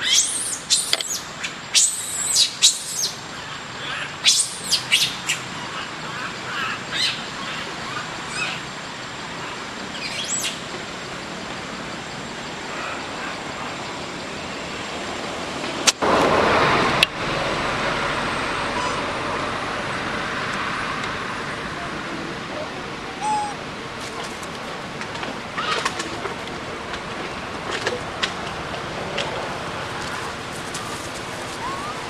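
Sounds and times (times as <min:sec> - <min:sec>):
birds chirping: 0:00.0 - 0:08.7, 0:09.4 - 0:10.7, 0:22.6 - 0:24.0, 0:30.1 - 0:32.0
steady background noise: 0:00.0 - 0:32.0.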